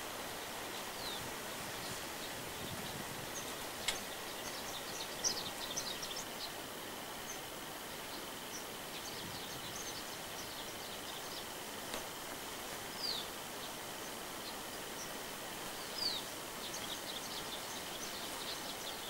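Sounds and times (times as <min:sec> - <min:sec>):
birds chirping: 0:00.0 - 0:19.0
steady background hiss: 0:00.0 - 0:19.0
sharp click: 0:03.8 - 0:04.1.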